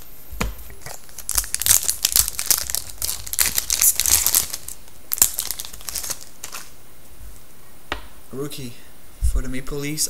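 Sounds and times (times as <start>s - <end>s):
foil wrapper crinkling: 0.8s - 6.8s.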